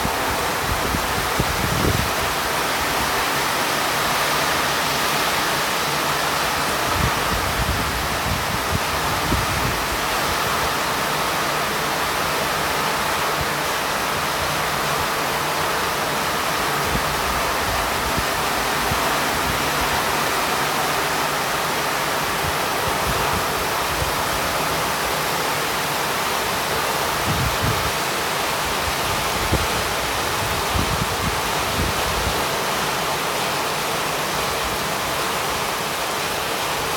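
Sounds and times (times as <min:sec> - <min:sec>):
wind buffeting microphone: 0:00.0 - 0:03.1, 0:06.8 - 0:10.1, 0:27.1 - 0:28.0, 0:28.8 - 0:32.5
heavy rain pouring: 0:00.0 - 0:36.9.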